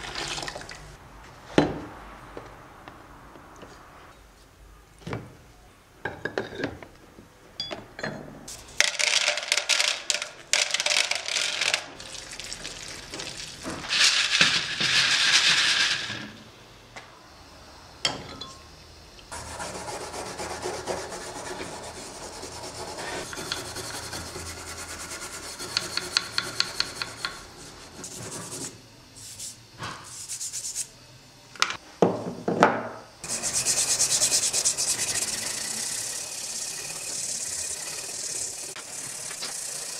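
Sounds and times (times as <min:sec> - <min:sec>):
stiff brush scrubbing metal: 0:33.2 - 0:37.8.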